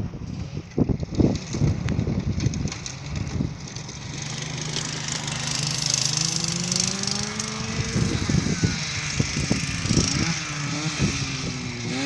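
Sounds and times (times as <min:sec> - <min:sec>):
crackling: 0:01.0 - 0:06.2
go-kart engine revving: 0:01.0 - 0:12.0.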